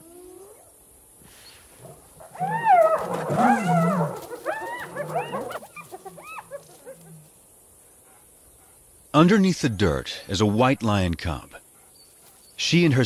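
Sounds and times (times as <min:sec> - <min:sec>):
hyenas yelping calls: 0:01.8 - 0:07.4.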